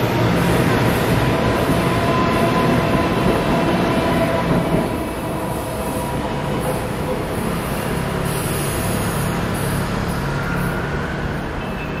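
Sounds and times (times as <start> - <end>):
stationary train humming: 0.0 - 12.0.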